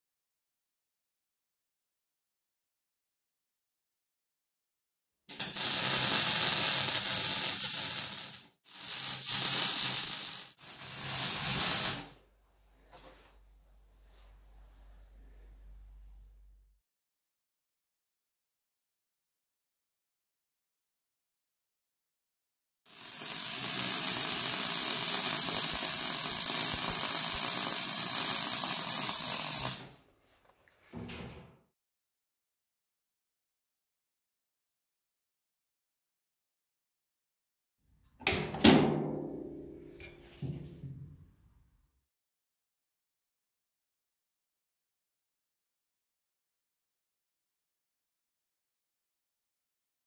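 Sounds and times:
welding arc crackling and hissing: 0:05.3 - 0:12.2, 0:22.9 - 0:30.0.

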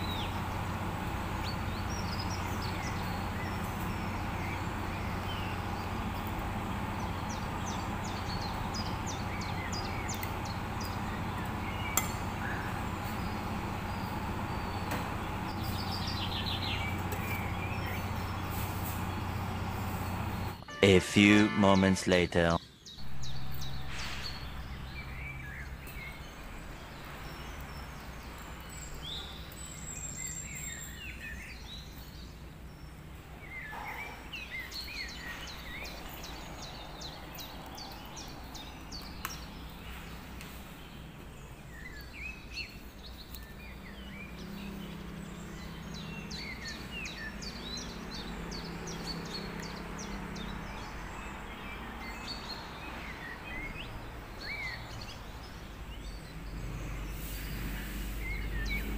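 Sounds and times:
small birds chirping: 0:00.0 - 0:20.8, 0:22.4 - 0:58.9.

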